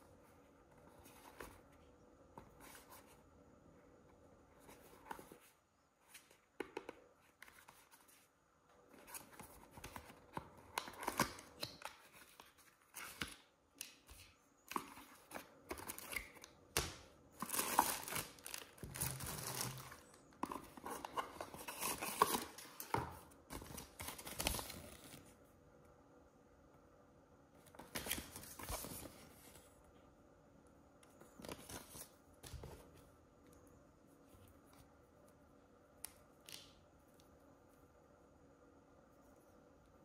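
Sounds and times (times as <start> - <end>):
packaging rustling and tearing: 17.4 - 22.9.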